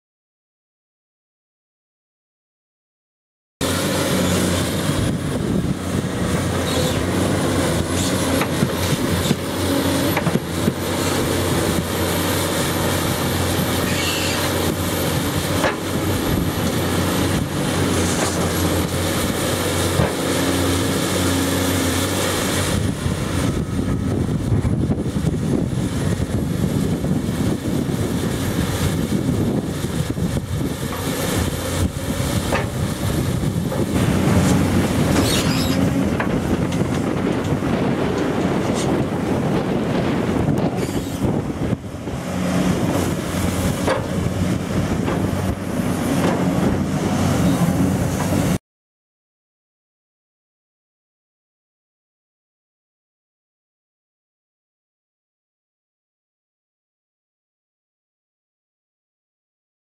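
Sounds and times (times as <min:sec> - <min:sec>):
excavator diesel engine: 0:03.6 - 0:48.6.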